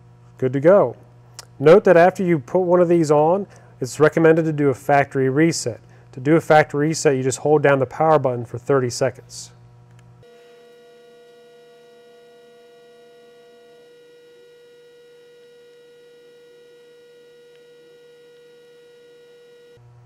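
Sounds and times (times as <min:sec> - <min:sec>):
steady electrical hum: 0:00.0 - 0:20.0
higher electrical tone: 0:10.2 - 0:19.9.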